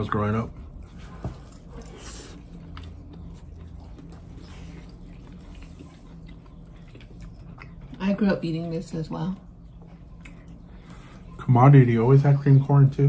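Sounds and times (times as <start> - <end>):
chewing and wet mouth sounds: 0.0 - 13.0
low steady hum: 0.0 - 13.0.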